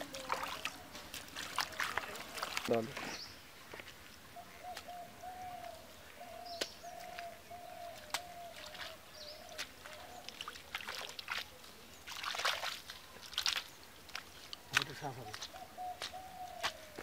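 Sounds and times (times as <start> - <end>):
small wet clicks: 0.0 - 3.0, 6.5 - 16.8
wet mud squelching: 0.0 - 4.0, 6.4 - 17.0.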